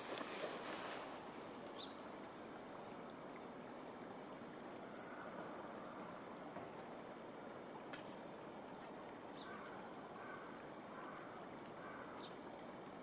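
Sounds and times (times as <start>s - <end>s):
background hiss: 0.0s - 13.0s
faint high chirp: 4.9s - 5.5s
kingfisher calling: 4.9s - 5.5s.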